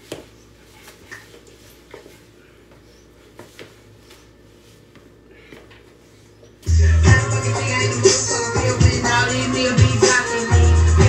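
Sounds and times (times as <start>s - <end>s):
loud music with heavy bass beat: 6.7s - 11.0s.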